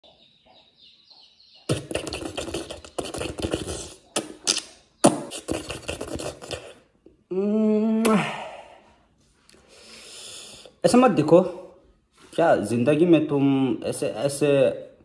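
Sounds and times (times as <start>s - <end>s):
wet lip-smacking clicks: 1.7s - 6.8s.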